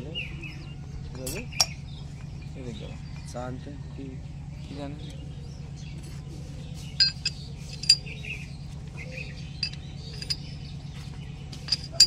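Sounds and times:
steady low hum: 0.0s - 12.0s
steel parts clinking: 7.0s - 8.4s, 9.5s - 10.6s, 11.6s - 12.0s.

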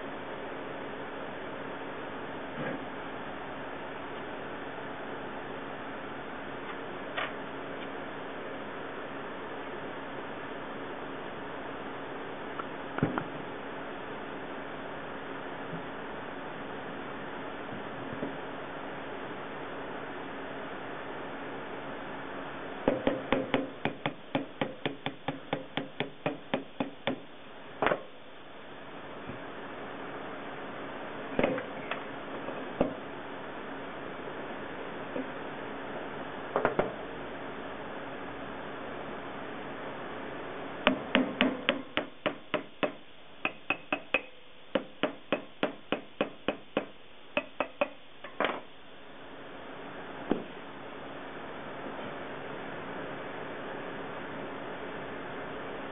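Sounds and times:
mallet tapping on metal frame: 22.9s - 27.2s, 40.9s - 48.4s.

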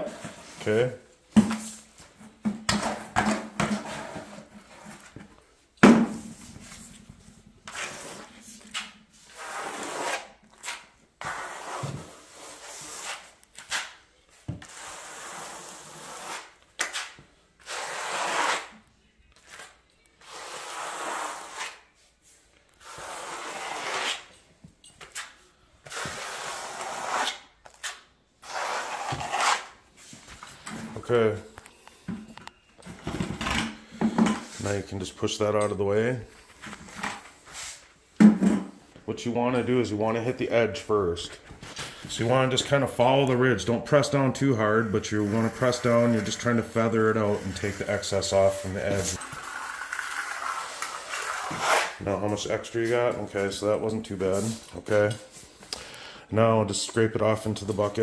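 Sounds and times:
trowel scraping compound on floor: 0.0s - 0.8s, 2.8s - 5.2s, 7.7s - 18.7s, 19.4s - 21.9s, 22.8s - 24.4s, 25.1s - 31.0s, 44.5s - 52.1s, 52.8s - 55.2s.

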